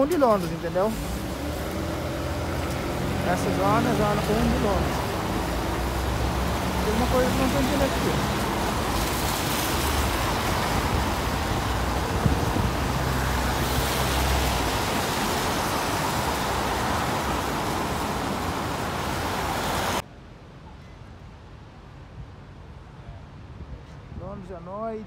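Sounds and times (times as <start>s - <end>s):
tyres hissing on wet road: 0.0s - 20.0s.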